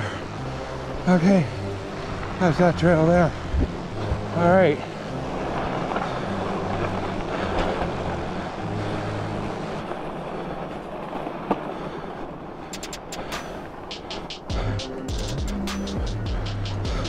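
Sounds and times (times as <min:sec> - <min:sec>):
bike tyres rolling on snow: 0:00.0 - 0:14.0
sharp clicks: 0:12.8 - 0:14.5.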